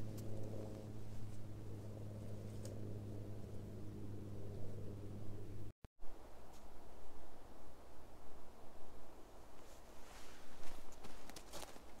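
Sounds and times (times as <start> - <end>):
footsteps crunching through twigs: 10.0 - 12.0.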